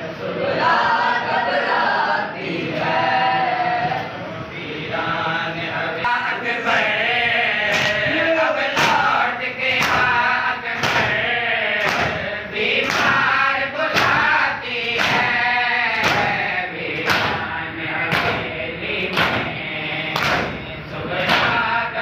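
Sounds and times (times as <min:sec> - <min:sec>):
men chanting in unison: 0:00.0 - 0:22.0
hands slapping chests: 0:07.7 - 0:08.0, 0:08.7 - 0:10.2, 0:10.8 - 0:11.2, 0:11.8 - 0:12.2, 0:12.8 - 0:13.3, 0:13.9 - 0:16.4, 0:17.0 - 0:17.4, 0:18.1 - 0:18.5, 0:19.1 - 0:19.5, 0:20.2 - 0:20.6.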